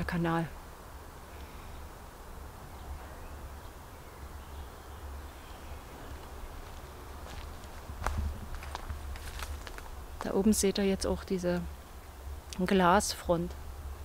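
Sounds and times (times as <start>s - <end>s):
steady low rumble: 5.2s - 14.0s.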